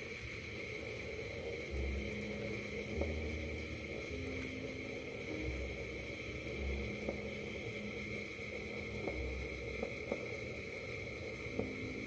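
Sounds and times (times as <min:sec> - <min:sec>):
bread sizzling on griddle: 0:00.0 - 0:12.0
dough crackling pops: 0:06.7 - 0:07.5, 0:08.5 - 0:12.0.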